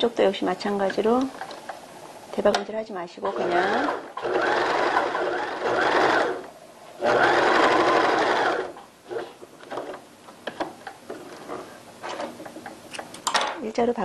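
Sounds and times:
sewing machine stitching: 3.3s - 6.4s, 7.0s - 10.0s.

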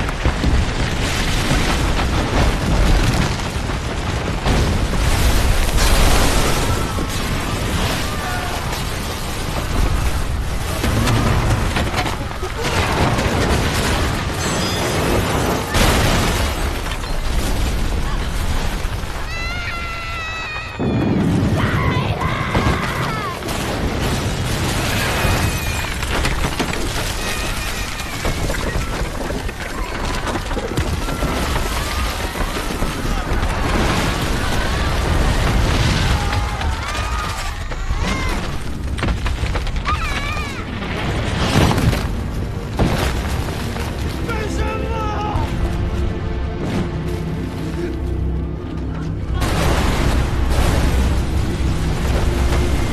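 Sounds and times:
crashing debris: 0.0s - 52.9s
deep rumble: 45.4s - 52.9s.

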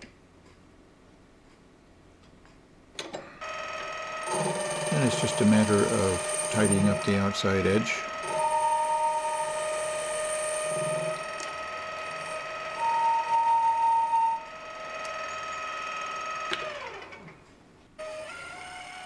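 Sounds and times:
metal lathe whining: 3.4s - 17.3s, 18.0s - 19.0s
high singing cutting tone: 4.8s - 11.3s.

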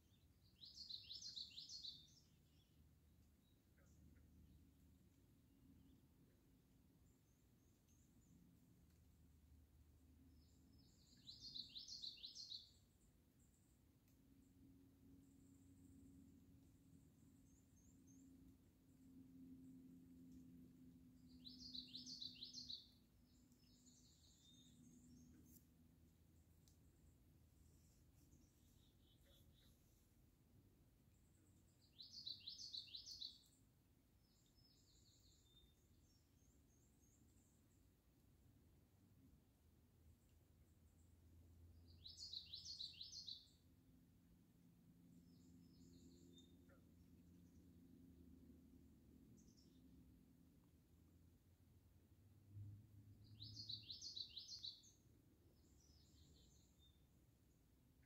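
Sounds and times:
bird chirping: 0.0s - 4.9s, 10.3s - 13.8s, 15.1s - 38.0s, 41.8s - 43.7s, 45.1s - 47.9s, 49.3s - 50.8s, 53.1s - 58.0s.

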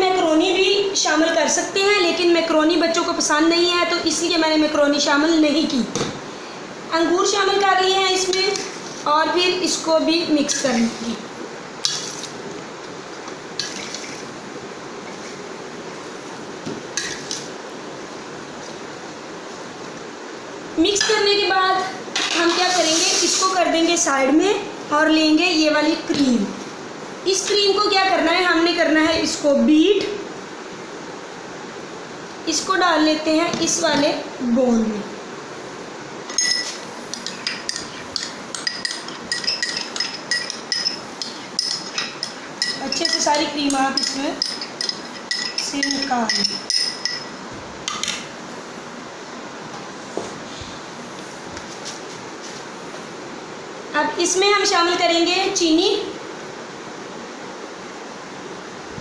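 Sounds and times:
fruit shuffling in a bowl: 22.6s - 24.0s
spoon clinking on steel bowl: 36.3s - 47.4s.

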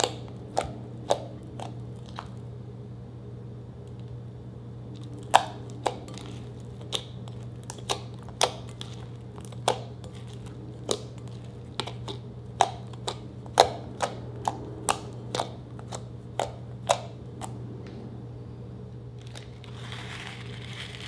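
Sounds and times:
slime popping: 0.0s - 2.4s, 5.0s - 17.5s
low hum: 0.0s - 21.0s.

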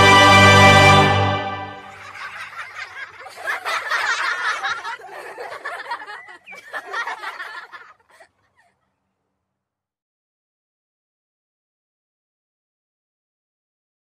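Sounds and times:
group of people laughing: 1.8s - 8.8s.

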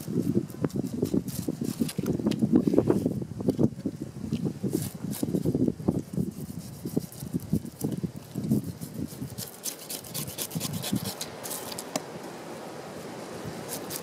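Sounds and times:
knife scraping fish scales: 4.3s - 12.0s, 13.6s - 14.0s.

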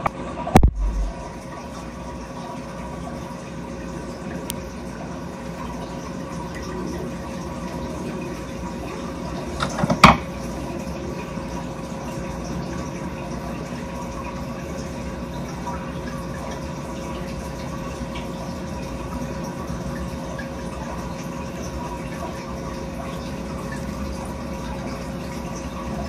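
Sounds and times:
water running into a steel sink: 5.5s - 26.0s.

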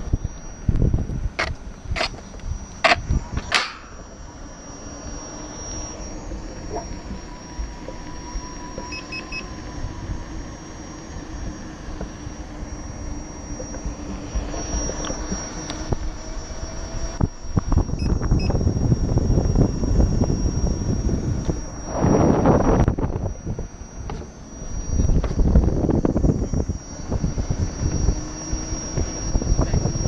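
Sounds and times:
wind buffeting microphone: 0.0s - 4.2s, 6.2s - 30.0s
electric motor whining: 0.0s - 30.0s
short high beeps: 17.9s - 18.6s.

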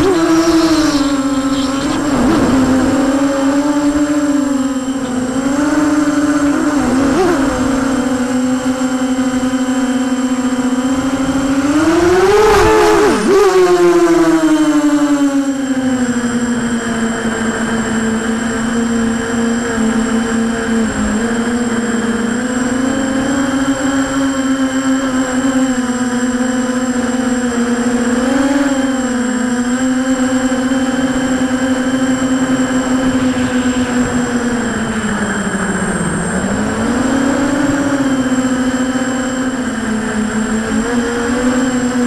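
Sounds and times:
drone motors and propellers whining: 0.0s - 42.0s.

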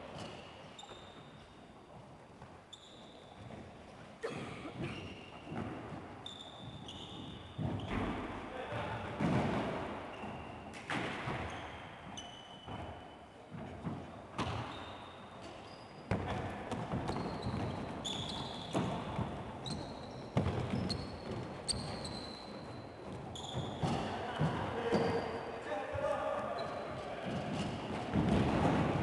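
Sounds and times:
football kicks echoing in hall: 0.0s - 29.0s
sneakers squeaking on floor: 0.0s - 29.0s
ball bouncing on wooden floor: 6.6s - 8.3s, 16.1s - 25.2s.

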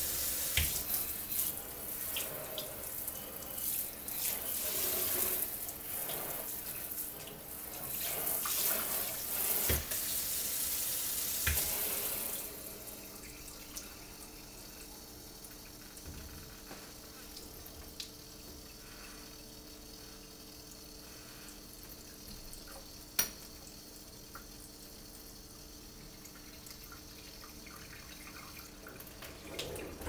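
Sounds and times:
tap water running into metal sink: 0.0s - 18.7s, 26.2s - 30.0s.

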